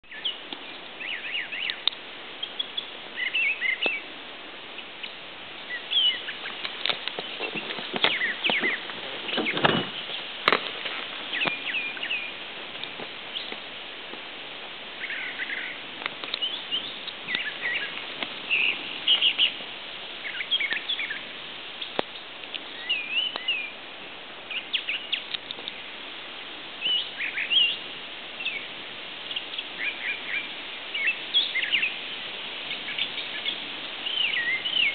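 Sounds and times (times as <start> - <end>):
birds singing and chirping: 0.0 - 4.1, 4.8 - 13.6, 14.9 - 23.8, 24.5 - 25.9, 26.8 - 34.9
background hiss: 0.0 - 34.9
low thump or rustle: 6.8 - 11.7.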